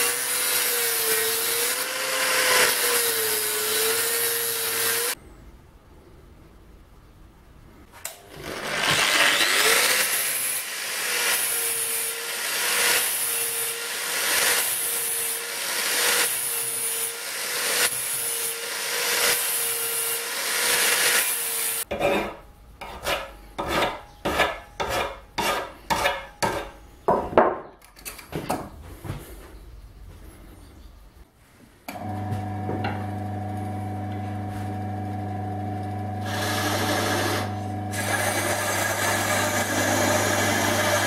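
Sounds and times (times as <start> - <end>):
angle grinder grinding steel: 0.0 - 5.2, 8.1 - 26.7, 36.2 - 41.0
file rasping on metal: 9.8 - 26.8.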